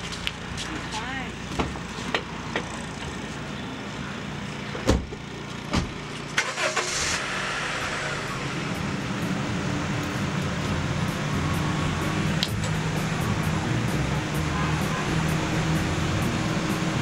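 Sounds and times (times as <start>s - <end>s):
car engine starting and running: 1.2s - 17.0s
car door shutting: 4.8s - 6.0s.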